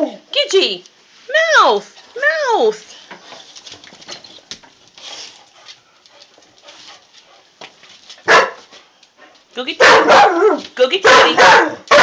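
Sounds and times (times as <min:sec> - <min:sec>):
dogs scuffling and mouthing: 0:02.9 - 0:09.6
dog barking: 0:08.2 - 0:08.6, 0:09.8 - 0:12.0.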